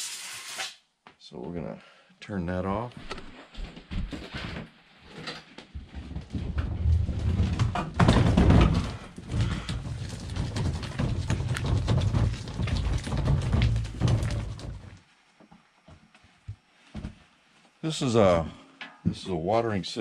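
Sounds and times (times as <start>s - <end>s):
cart jolt: 6.4s - 15.0s
cart wheels rattling over gravel: 6.8s - 15.0s.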